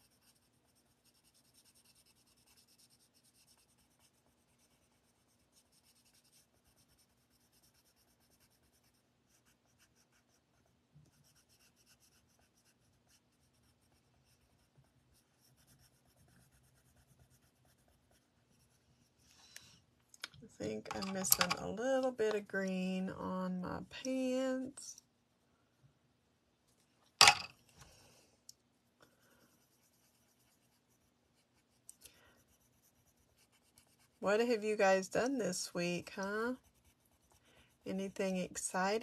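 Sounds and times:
pencil scratching on cardstock: 0.0 - 19.2, 29.2 - 39.0.

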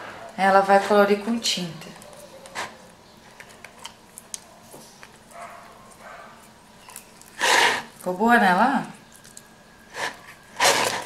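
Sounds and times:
slime squelching: 3.8 - 11.0.

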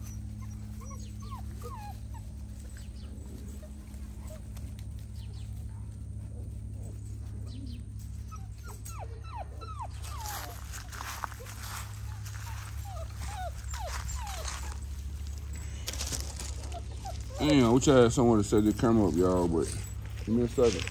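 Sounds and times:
puppies whimpering and whining: 0.0 - 20.9.

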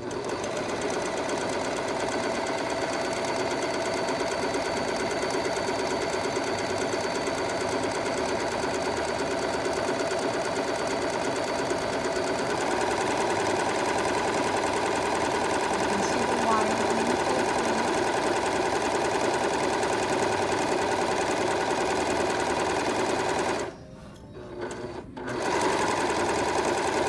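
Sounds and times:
overlock machine running: 0.0 - 23.8, 24.4 - 27.0.

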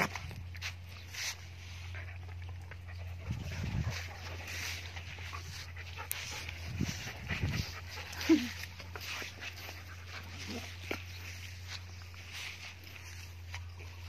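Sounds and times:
dogs panting and scuffling: 0.0 - 14.0
dog low rumbles: 1.5 - 14.0.

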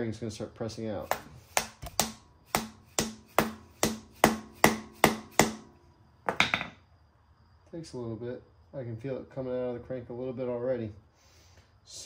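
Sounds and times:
hammer ringing on metal: 2.0 - 5.7.

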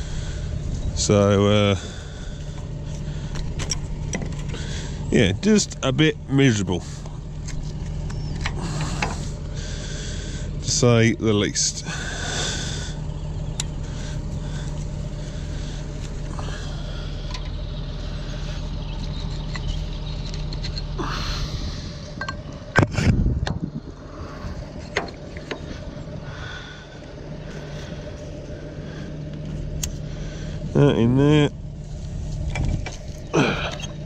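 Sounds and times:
tractor diesel engine idling: 0.0 - 34.0
light metallic clicks: 13.5 - 13.8.

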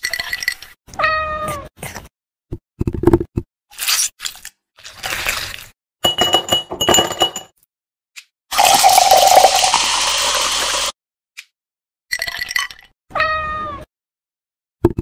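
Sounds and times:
spoon clinking in glass: 6.0 - 7.5, 8.6 - 9.8
soda pouring over ice: 8.5 - 10.9
cat meowing: 13.1 - 13.9.

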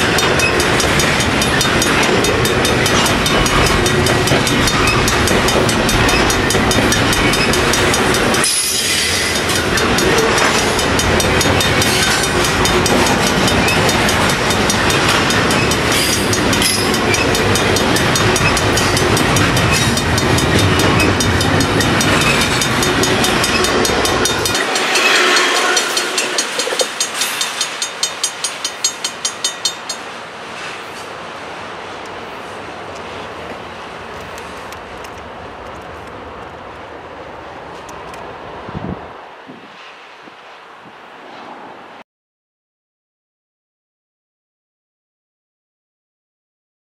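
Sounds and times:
train wheel clicks: 0.0 - 30.1, 32.9 - 36.8
freight train wheels rumbling: 0.0 - 40.5.

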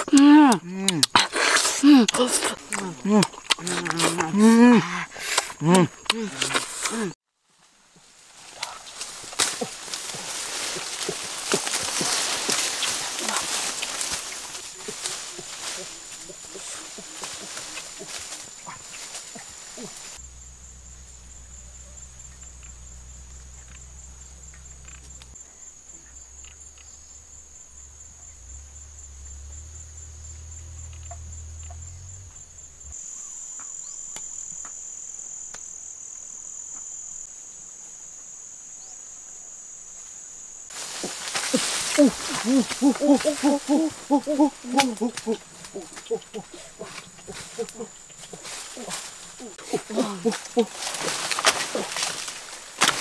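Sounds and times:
insects droning: 0.0 - 53.0
pitched calls bending up and down: 41.0 - 52.5.

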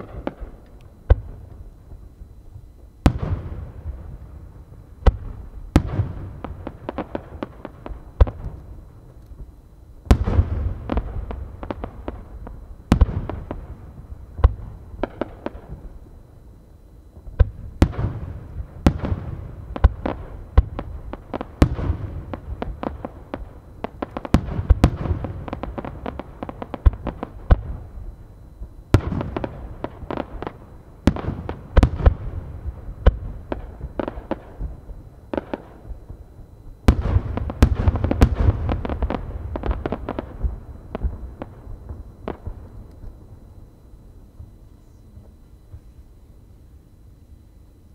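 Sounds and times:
fireworks crackling: 17.3 - 43.2.

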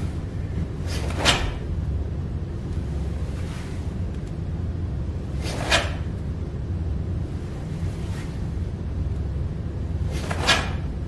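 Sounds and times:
sharp swishes of movement: 0.0 - 1.8, 5.2 - 6.2, 10.0 - 11.0
low room hum: 0.0 - 11.0.

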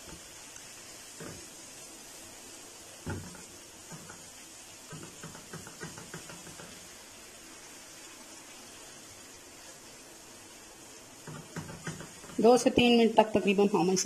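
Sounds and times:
spatula knocking on frying pan: 3.0 - 7.0, 11.2 - 12.6.

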